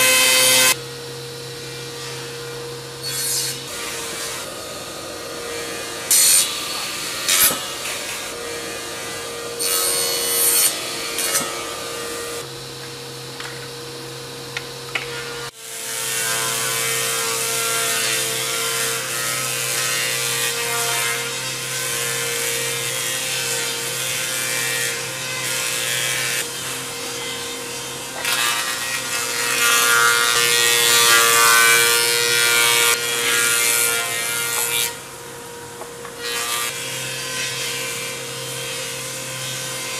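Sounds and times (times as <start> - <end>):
planing machines humming: 0.1 - 16.6, 17.3 - 39.9
cutter heads shaving boards: 3.0 - 12.5, 14.9 - 35.1.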